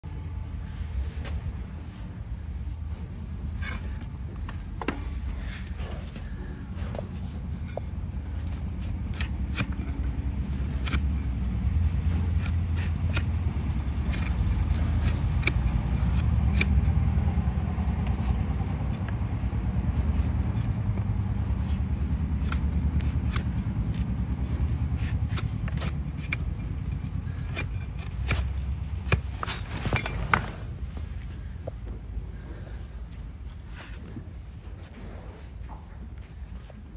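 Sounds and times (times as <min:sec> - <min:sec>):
blade shaving hoof: 0:04.8 - 0:30.7.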